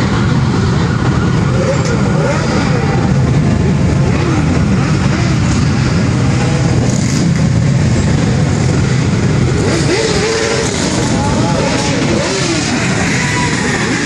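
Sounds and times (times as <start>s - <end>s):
motorcycles revving past: 1.4s - 14.0s.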